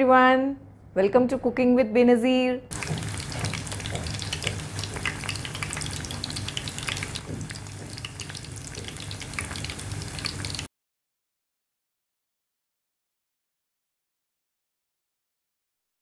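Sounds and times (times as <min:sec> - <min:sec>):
meat deep-frying in oil: 0:02.7 - 0:10.7.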